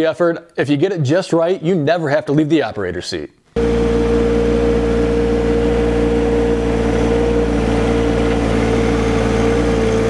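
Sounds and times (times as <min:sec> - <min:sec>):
tractor engine running: 0:03.6 - 0:10.0.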